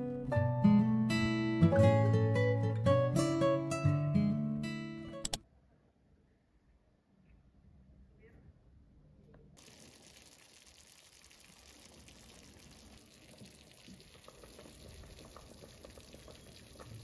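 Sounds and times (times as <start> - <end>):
food sizzling in pans: 9.6 - 17.0
soup bubbling: 9.6 - 17.0.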